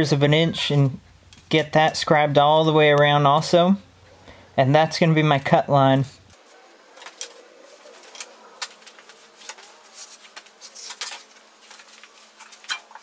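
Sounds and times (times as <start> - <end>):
scriber scratching steel: 6.3 - 13.0.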